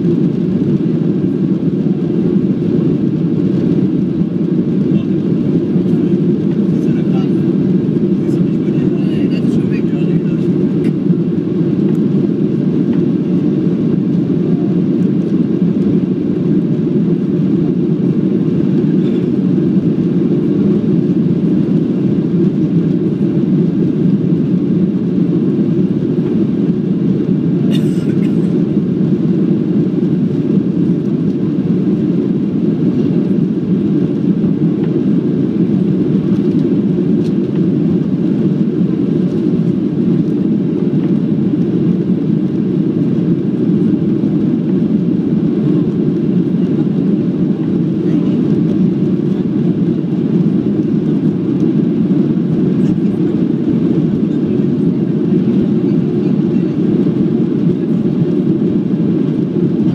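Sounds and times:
airplane cabin engine rush: 0.0s - 59.9s.

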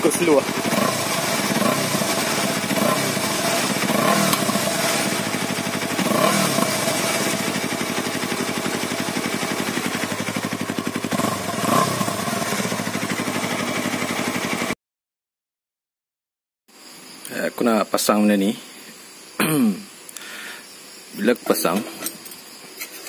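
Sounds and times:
motorcycle engine idling and revving: 0.0s - 14.8s.

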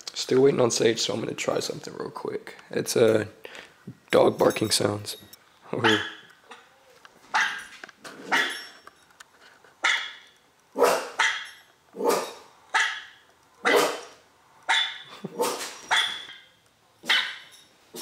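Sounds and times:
dog barking: 5.8s - 6.2s, 7.4s - 7.7s, 9.8s - 10.2s, 10.8s - 14.1s, 14.7s - 16.3s, 17.0s - 17.5s.

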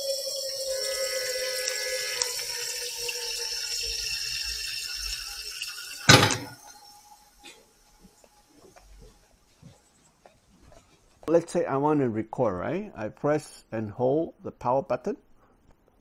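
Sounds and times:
tap water running into container: 0.0s - 8.4s
loud knock: 6.1s - 6.5s.

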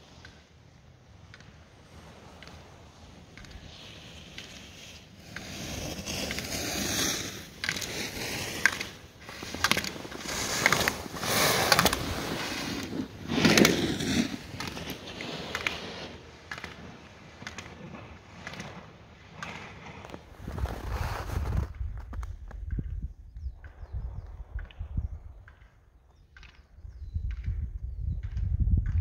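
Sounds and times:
skis scraping on snow: 0.0s - 22.7s.

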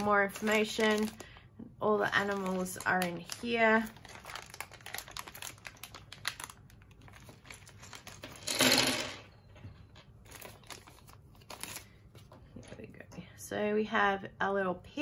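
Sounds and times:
plastic bag crinkling: 0.0s - 1.4s, 2.0s - 12.0s.

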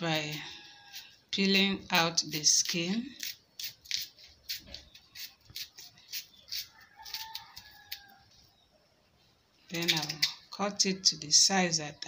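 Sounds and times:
knife cutting and scraping yam: 0.0s - 8.4s, 9.7s - 10.5s.

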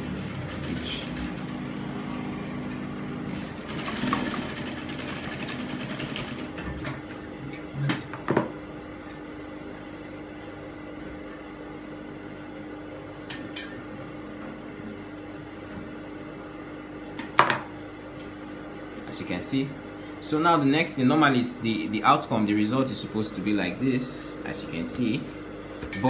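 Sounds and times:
sewing machine stitching: 0.0s - 1.5s, 3.6s - 6.6s
steady hum: 0.0s - 26.0s.

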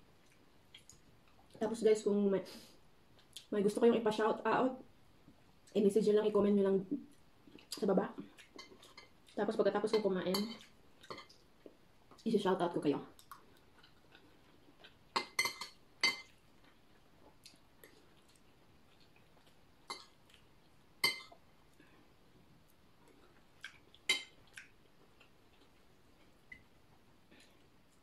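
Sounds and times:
cutlery clinking on plates: 15.2s - 16.3s.

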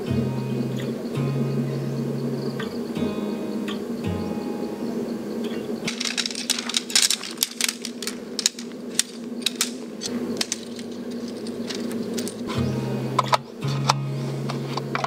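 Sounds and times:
small hard objects clicking: 5.9s - 12.5s.

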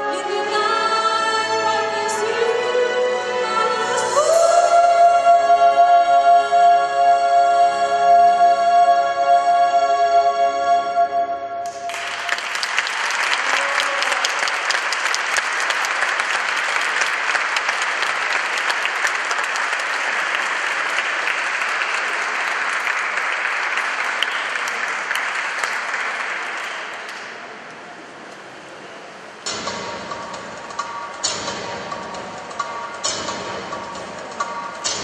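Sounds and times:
audience applause: 11.7s - 27.6s.

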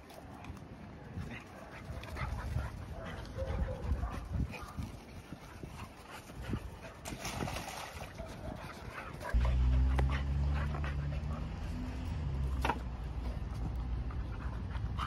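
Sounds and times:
dog barking: 2.9s - 4.8s, 8.1s - 9.4s
splashing in wading pool: 6.9s - 9.3s.

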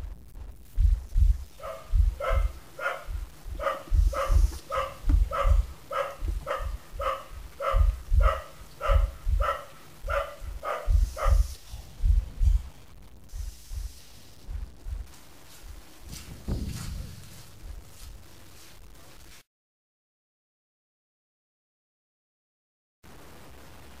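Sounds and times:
heavy low thumps: 0.0s - 19.0s
dog barking: 1.5s - 11.6s.

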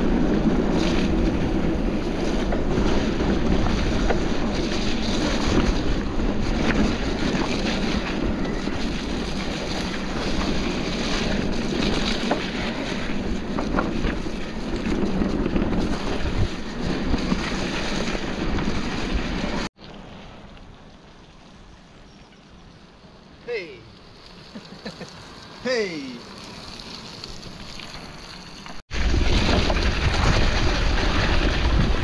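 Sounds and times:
wind buffeting microphone: 0.0s - 19.7s, 28.9s - 32.0s.

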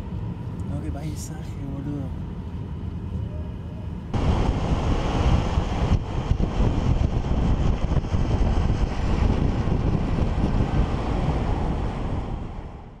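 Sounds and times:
wind buffeting microphone: 4.1s - 13.0s.

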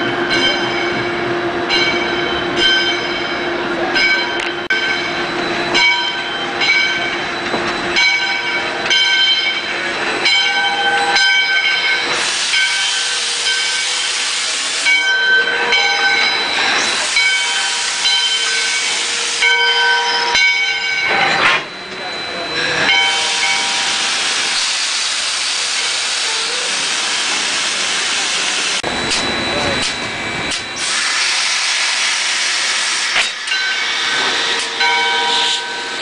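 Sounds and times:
locomotive bell ringing: 0.0s - 31.0s, 32.2s - 36.0s
steam locomotive moving slowly: 0.0s - 36.0s
loud steam hiss: 11.7s - 20.3s, 22.6s - 36.0s.

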